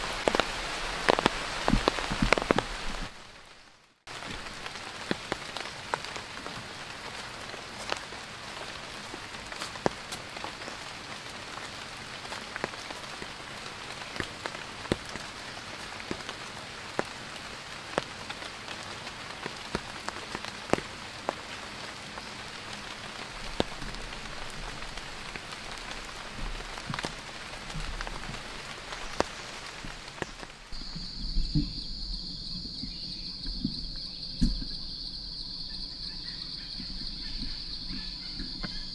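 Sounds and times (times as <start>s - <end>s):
rain falling on a surface: 0.0s - 38.9s
high insect chirring: 30.8s - 38.9s.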